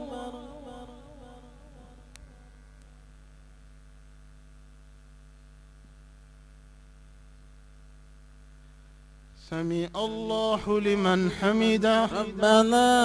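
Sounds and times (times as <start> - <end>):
electrical mains hum: 0.0 - 13.0
faint click: 2.1 - 3.0.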